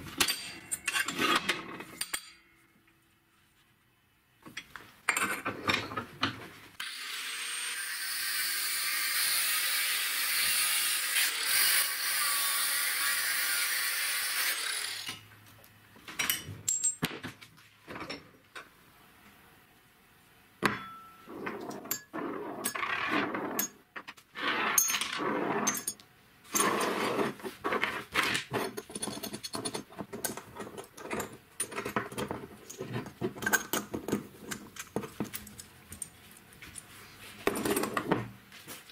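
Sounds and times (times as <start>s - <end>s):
metal parts clinking and scraping: 0.0s - 2.4s, 16.2s - 17.1s, 24.5s - 27.2s, 28.1s - 36.1s
angle grinder cutting steel: 6.8s - 15.2s.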